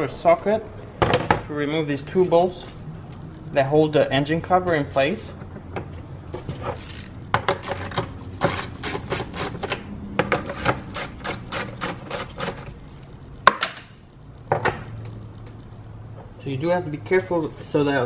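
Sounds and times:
ratchet wrench clicking: 6.8s - 12.7s.

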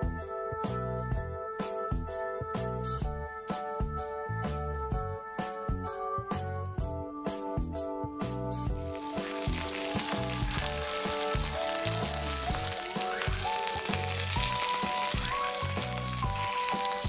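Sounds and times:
background music: 0.0s - 17.0s
noodles sizzling on hot plate: 8.8s - 17.0s.

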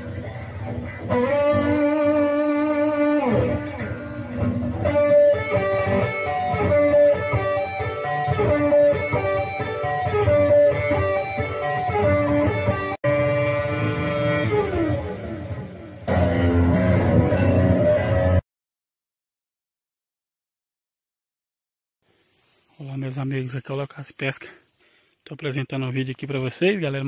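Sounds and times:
electric guitar lead melody: 0.0s - 18.4s.

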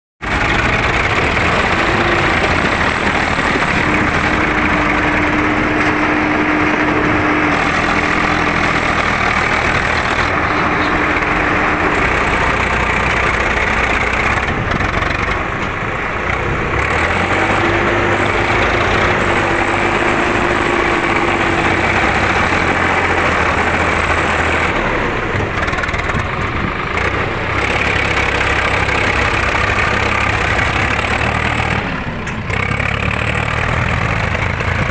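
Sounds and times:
tractor diesel engines under load: 0.2s - 34.9s.

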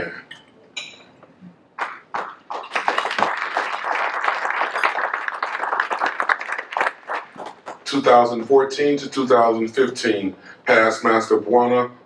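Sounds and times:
audience applauding: 1.8s - 7.8s.

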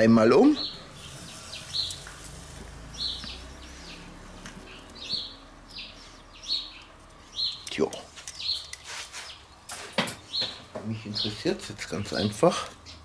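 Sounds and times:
small bird chirping: 0.5s - 2.3s, 2.9s - 9.6s.

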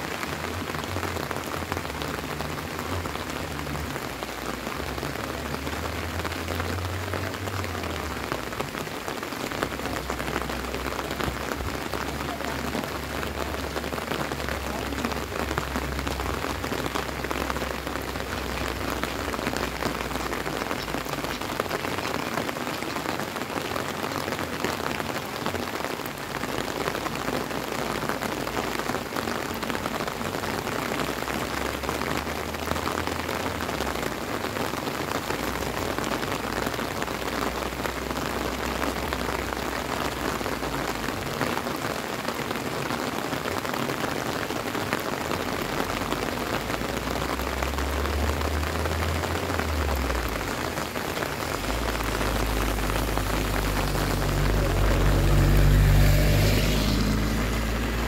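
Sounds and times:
steady rain on grass and road: 0.0s - 58.0s.

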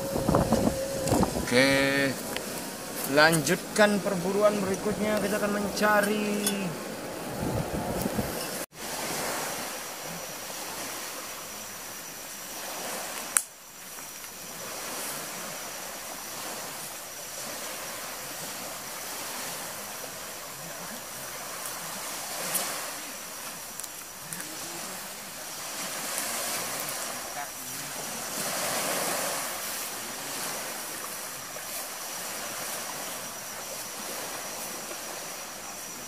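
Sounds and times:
faint high tone: 0.0s - 2.2s
sea waves on shore: 0.0s - 36.0s.

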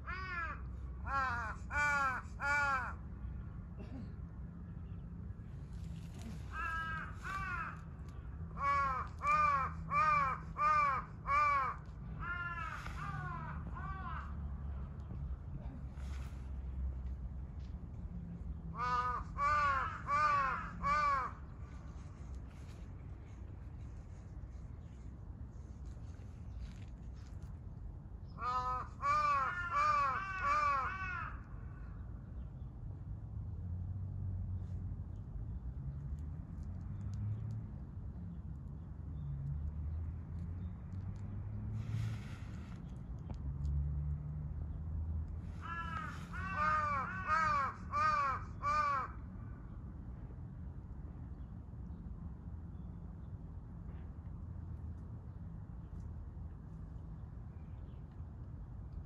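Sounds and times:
crow cawing: 0.0s - 3.0s, 6.4s - 14.5s, 18.7s - 21.4s, 28.4s - 31.7s, 45.6s - 49.3s.

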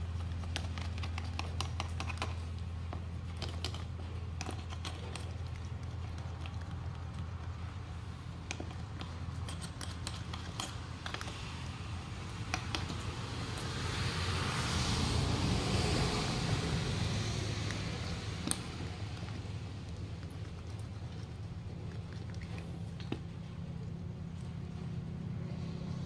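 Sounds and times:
steady low hum: 0.0s - 26.0s
hand tool clicking and scraping: 0.2s - 6.8s, 8.4s - 11.6s, 12.4s - 13.7s
broad rushing noise: 11.3s - 19.8s.

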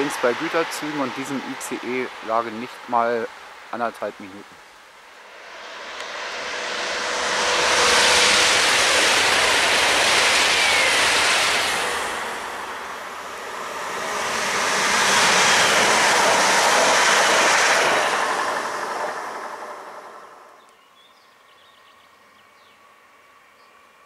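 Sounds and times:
electric train passing close: 0.0s - 2.7s, 5.0s - 20.7s
high-speed train passing: 0.0s - 20.7s.

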